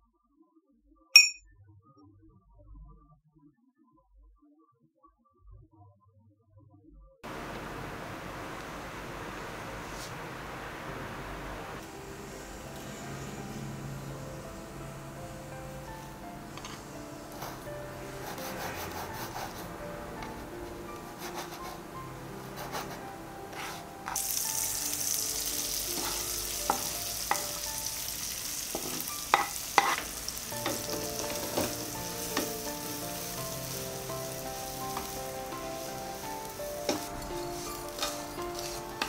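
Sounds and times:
utensil clinking on pan: 1.2s - 1.4s, 28.7s - 31.8s, 36.8s - 39.0s
soft background music: 10.8s - 39.0s
food sizzling in frying pan: 23.5s - 39.0s.

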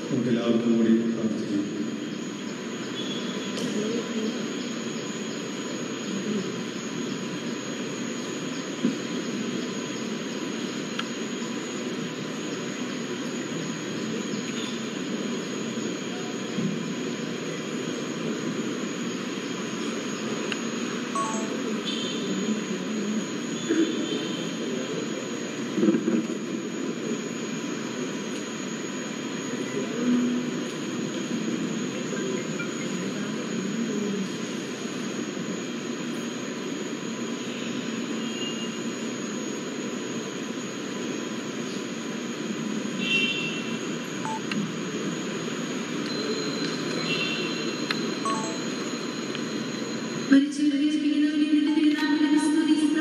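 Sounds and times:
crowded hall background noise: 0.0s - 53.0s
brief high tones: 21.2s - 21.6s, 48.3s - 48.8s.

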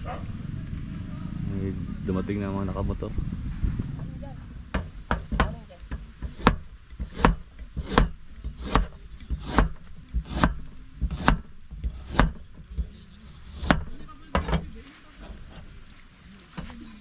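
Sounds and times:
knife chopping on cutting board: 6.2s - 11.5s, 12.1s - 12.4s, 13.6s - 13.9s.

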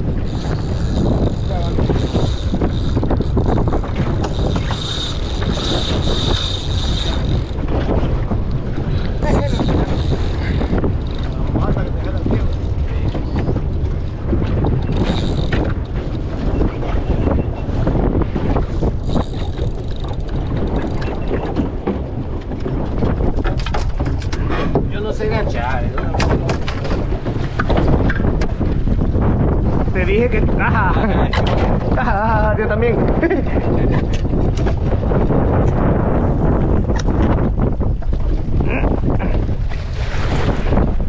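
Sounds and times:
water slapping boat hull: 0.0s - 41.0s
wind buffeting microphone: 0.0s - 41.0s
fishing reel clicking and rattling: 0.1s - 16.6s, 18.8s - 21.7s.

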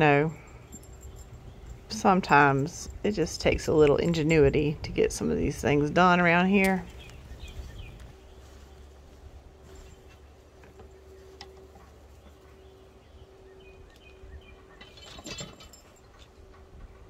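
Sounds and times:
wind rumble: 0.0s - 10.5s
faint steady hum: 0.0s - 17.0s
birds chirping: 0.2s - 16.6s.

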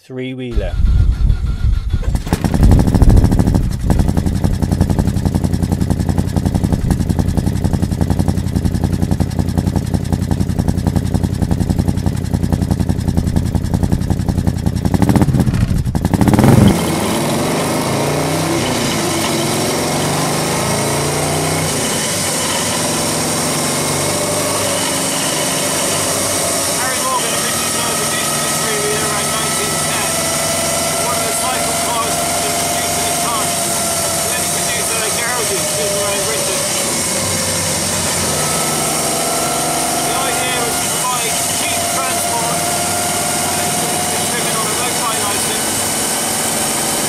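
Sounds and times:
wind rushing across microphone: 0.6s - 4.1s
car engine idling and revving: 0.6s - 47.0s.

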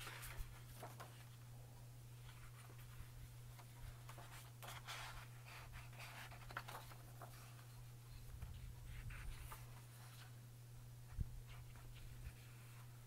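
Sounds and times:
book pages turning: 0.0s - 1.4s, 2.2s - 7.9s
low steady hum: 0.0s - 13.0s.

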